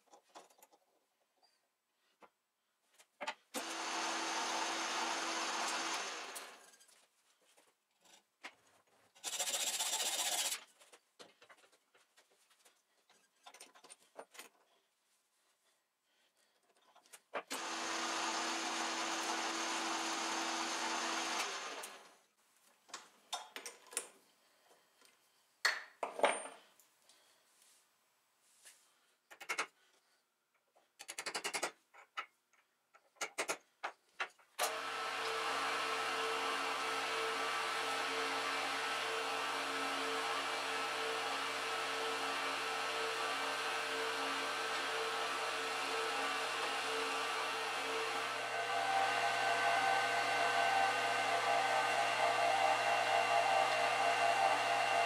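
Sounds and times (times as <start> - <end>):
lathe running: 3.6 - 6.6, 17.5 - 22.1, 34.7 - 55.0
mill motor running: 3.6 - 6.6, 17.5 - 22.1, 34.6 - 55.0.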